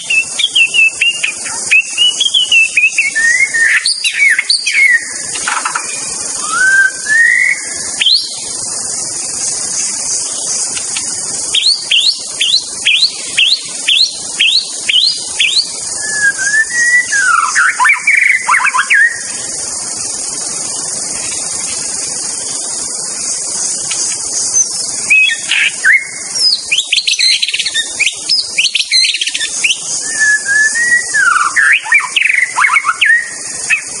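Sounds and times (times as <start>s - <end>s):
bird singing whistled phrases: 0.0s - 8.4s, 11.5s - 19.5s, 24.4s - 34.0s
steady high hiss: 0.0s - 34.0s.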